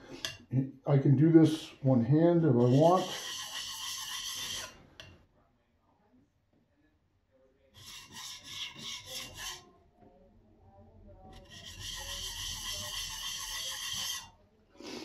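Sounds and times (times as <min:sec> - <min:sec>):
steel blade scraping sharpening plate: 0:00.1 - 0:00.4, 0:02.6 - 0:05.1, 0:07.8 - 0:09.6, 0:11.4 - 0:14.3.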